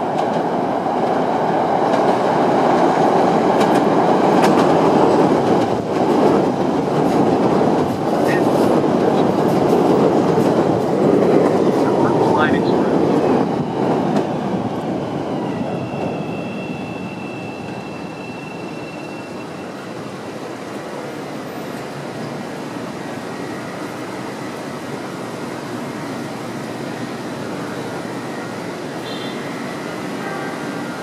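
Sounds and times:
train rumbling on elevated track: 0.0 - 31.0
high wheel squeal: 15.7 - 20.2.

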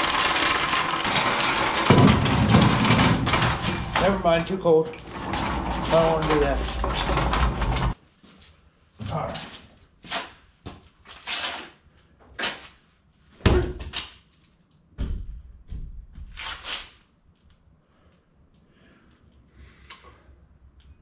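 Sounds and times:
objects knocking and clattering: 0.0 - 8.0.

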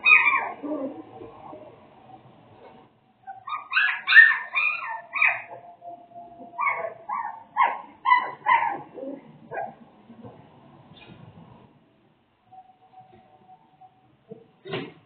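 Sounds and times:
puppies whining and yelping: 0.0 - 1.6, 2.6 - 9.8.

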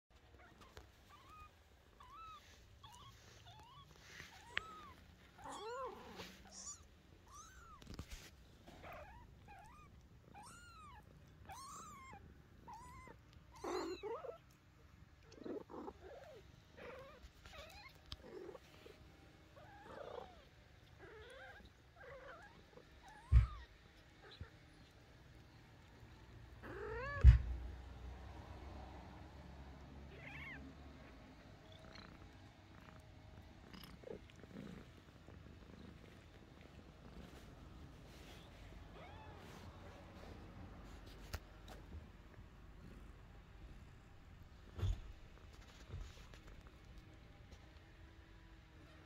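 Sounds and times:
cat purring: 0.3 - 49.0
kittens mewing: 8.6 - 14.5, 26.6 - 27.6.

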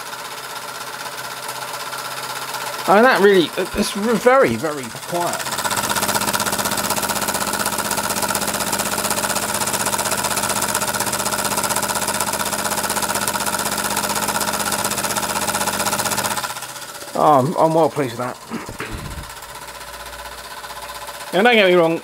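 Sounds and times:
steam engine running: 0.0 - 22.0
steady hum: 2.9 - 6.0, 16.9 - 21.0.

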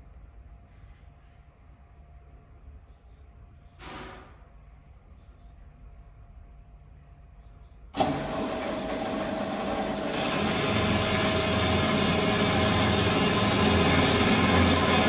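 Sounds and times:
band saw cutting metal pipe: 8.0 - 15.0
band saw running: 8.0 - 15.0.

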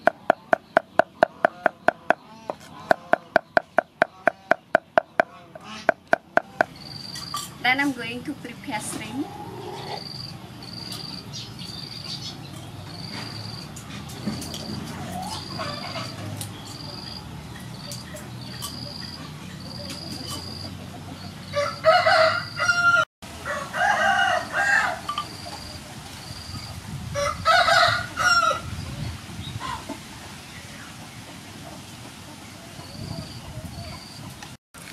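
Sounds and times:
rooster crowing: 21.5 - 25.2, 27.2 - 28.7.

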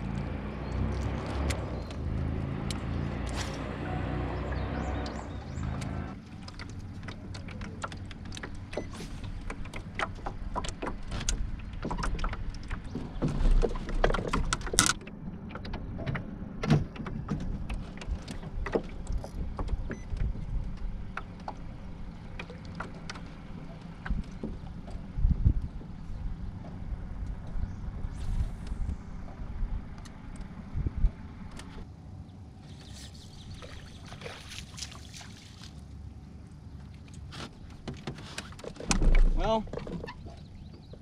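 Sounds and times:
steady low rumble: 0.0 - 37.8
fishing gear clicks and knocks: 6.4 - 16.2.

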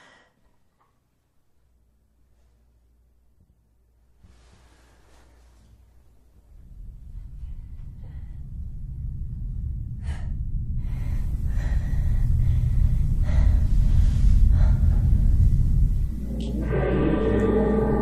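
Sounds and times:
low rumbling drone: 6.2 - 18.0
woman breathing heavily and gasping: 10.0 - 16.4
gong-like ringing tone: 16.2 - 18.0.

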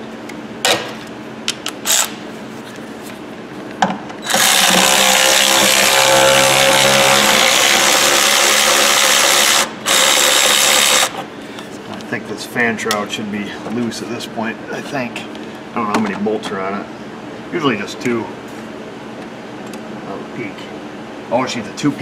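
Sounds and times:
handheld power tool running: 4.2 - 11.2.

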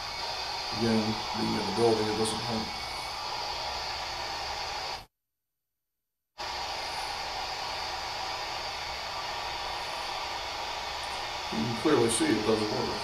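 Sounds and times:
steady hiss: 0.0 - 5.0, 6.4 - 13.0.

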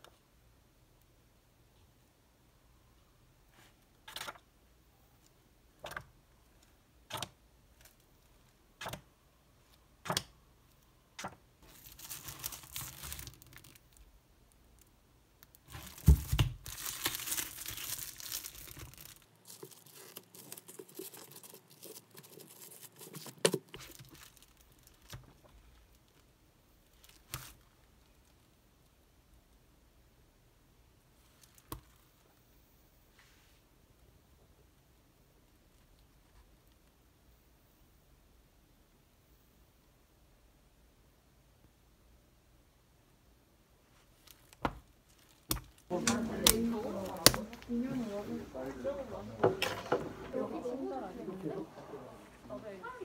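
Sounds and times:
book pages flipping: 11.2 - 13.9, 15.6 - 25.5, 44.2 - 52.5
plastic shrink wrap crinkling: 11.2 - 28.5, 31.2 - 32.0, 43.9 - 51.2.

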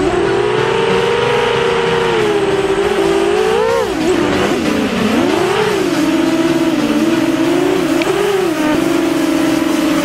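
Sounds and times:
drone motors whining: 0.0 - 10.0.

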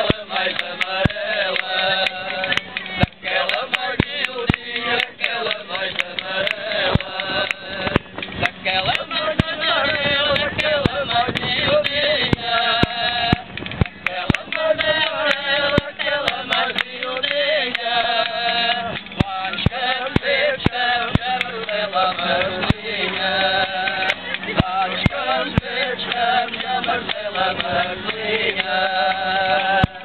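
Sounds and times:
men singing folk song: 0.0 - 30.0.

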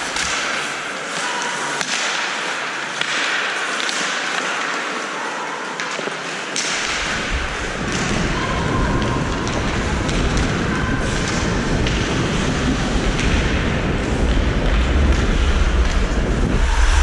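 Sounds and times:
skate blades scraping ice: 0.0 - 13.4
hockey sticks and puck clacking: 0.0 - 16.2
low rumble: 7.5 - 17.0.

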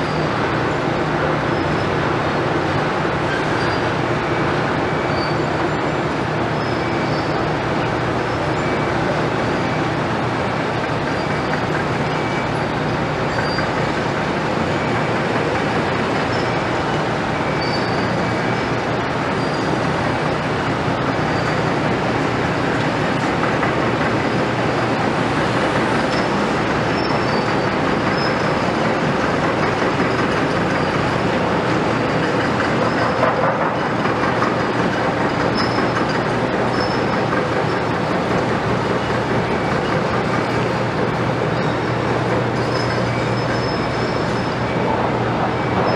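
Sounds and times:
construction machinery and trucks: 0.0 - 45.9
faint short high squeals: 3.3 - 4.0, 4.9 - 6.0, 6.6 - 7.5, 13.3 - 13.8, 17.4 - 18.6, 19.4 - 19.8, 42.6 - 45.9.

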